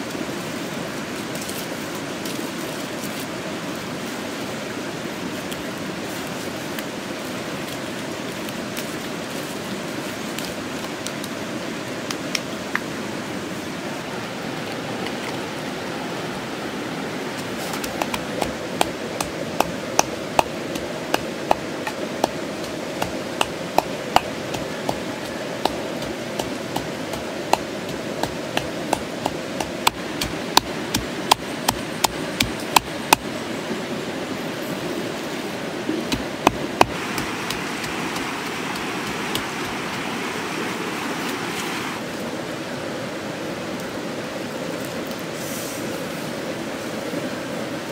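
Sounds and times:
rushing stream: 0.0 - 47.9
pestle pounding in a mortar: 17.7 - 33.3, 36.1 - 39.8.

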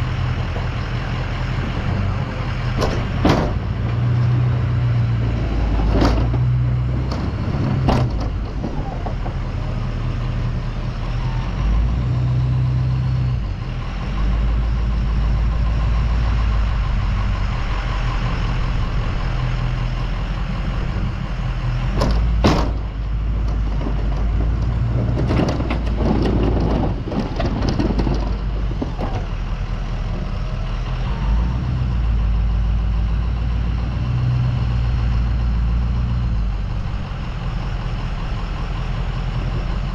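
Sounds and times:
diesel truck engine under load: 0.0 - 39.9
clattering: 22.0 - 29.3.

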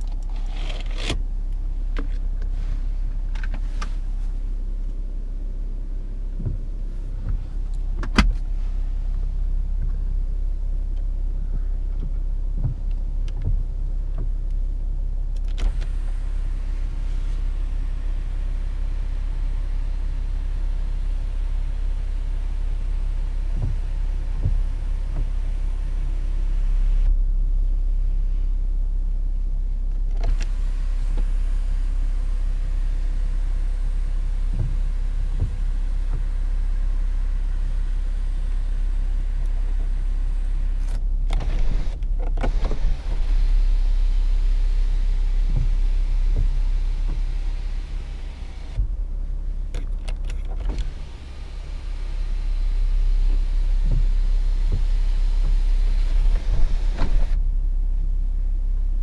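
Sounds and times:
low rumble inside car cabin: 0.0 - 59.0.

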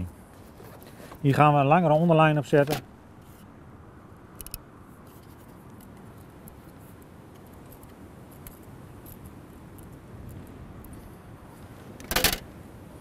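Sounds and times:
clicks and scratching of fishing line: 4.4 - 11.1.

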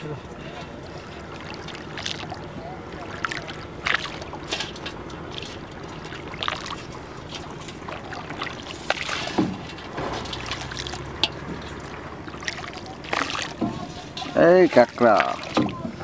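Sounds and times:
water lapping around boat: 0.0 - 16.0
knocks: 9.4 - 10.7.

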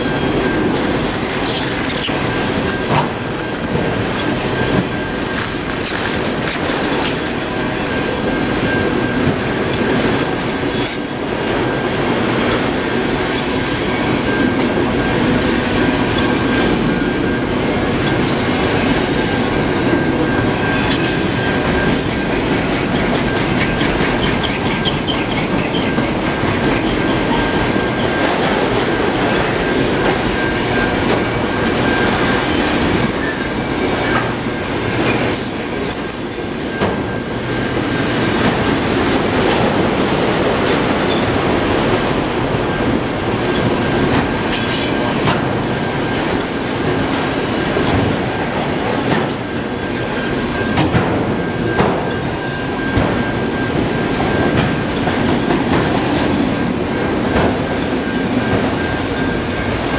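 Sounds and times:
train wheels rumbling on rail: 0.0 - 59.9
wheels and couplers clanking: 0.1 - 11.6.

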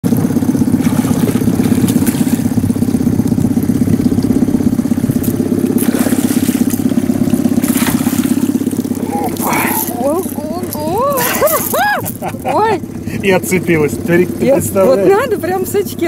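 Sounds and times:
boat motor running: 0.0 - 16.0
fish splashing at surface: 0.5 - 12.5.

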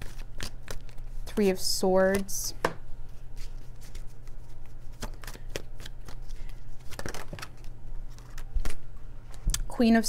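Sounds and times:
cards being shuffled: 0.0 - 1.2, 3.0 - 8.8.

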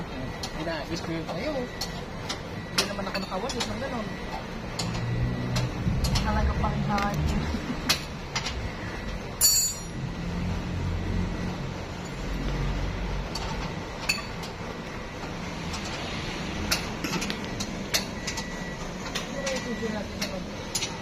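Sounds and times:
ringing metal clink: 9.4 - 10.0.

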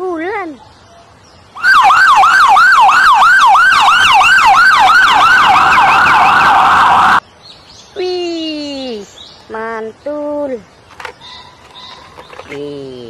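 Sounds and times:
ambulance siren yelp: 1.6 - 7.2.

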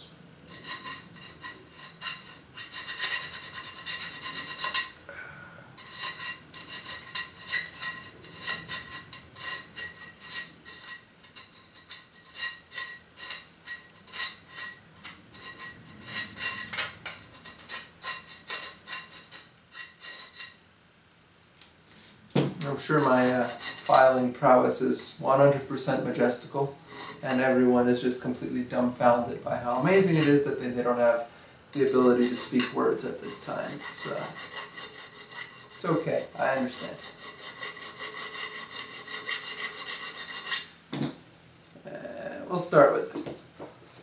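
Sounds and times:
file rasping on metal plate: 0.5 - 5.0, 5.8 - 20.6, 22.6 - 24.2, 26.8 - 27.5, 29.6 - 31.0, 31.7 - 40.8.

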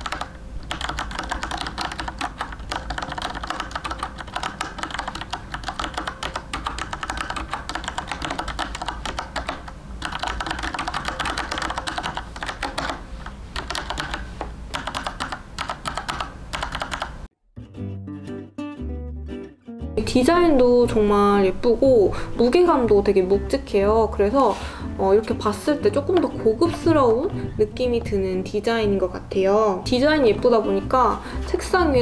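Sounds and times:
mechanical keyboard typing: 0.0 - 17.3.

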